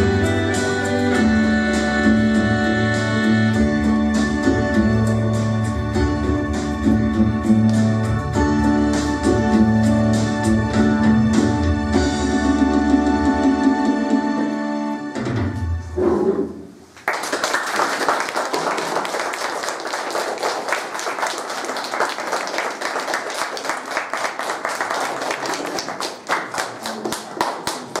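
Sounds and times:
music: 0.0s - 16.6s
audience applauding: 17.0s - 28.0s.

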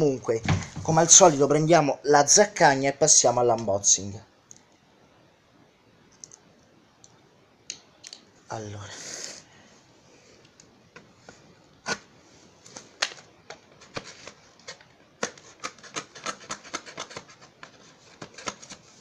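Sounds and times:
knife cutting cardboard tape: 14.7s - 18.8s.

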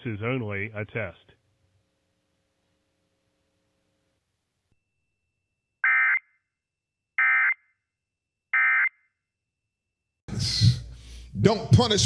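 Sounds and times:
television programme audio: 0.0s - 2.6s, 10.3s - 12.0s.

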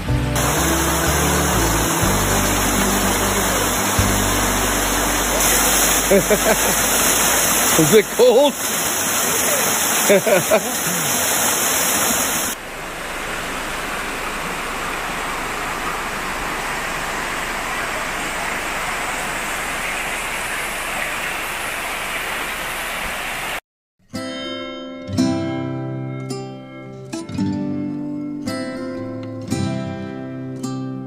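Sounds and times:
plucked guitar music: 0.0s - 8.4s, 24.1s - 31.0s
river rushing over rocks: 0.4s - 23.6s.

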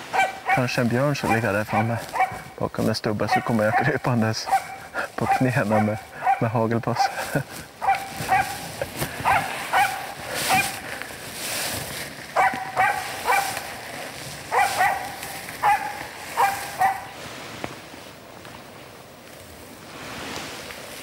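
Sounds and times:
dog barking sharply: 0.1s - 2.5s, 3.3s - 7.1s, 7.8s - 8.6s, 9.2s - 10.7s, 12.4s - 13.6s, 14.5s - 17.1s.

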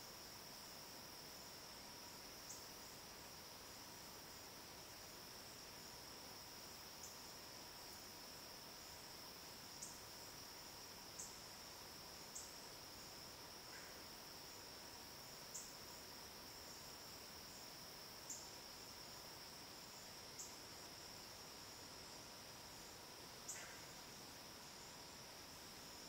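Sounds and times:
insect high-pitched trill: 15.4s - 26.0s.

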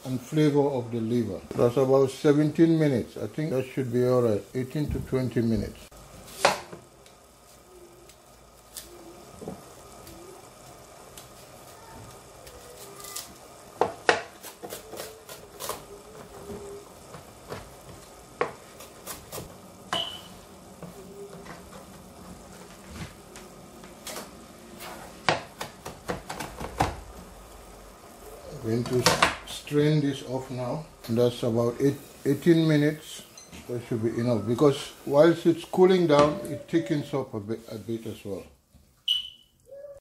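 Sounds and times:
liquid bubbling in saucepan: 3.7s - 12.7s, 13.3s - 28.6s.

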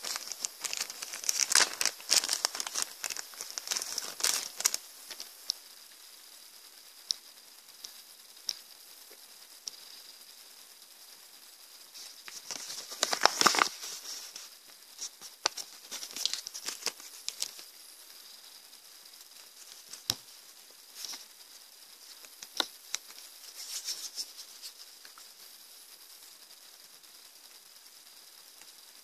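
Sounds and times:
plastic zip bag crinkling: 0.0s - 5.3s, 12.3s - 14.4s, 15.4s - 17.6s
crackles and light taps: 0.0s - 6.1s, 7.0s - 9.9s, 12.0s - 17.7s, 19.2s - 21.4s, 22.0s - 25.5s, 28.6s - 28.9s.

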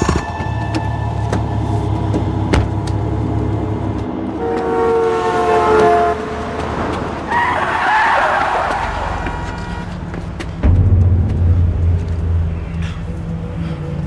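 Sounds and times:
vehicle horn passing: 4.3s - 6.4s
low engine rumble: 10.1s - 14.0s.

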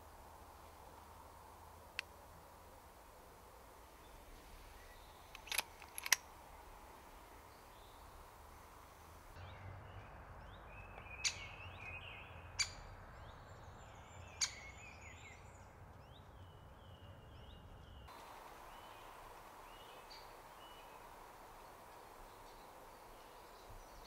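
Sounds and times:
faint woodland birdsong: 0.0s - 24.0s
sharp clicks: 5.3s - 6.3s.

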